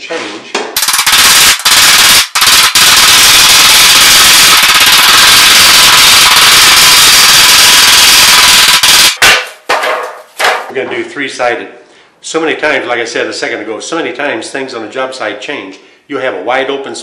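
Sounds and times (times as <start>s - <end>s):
hammer striking sheet metal: 0.1s - 10.7s.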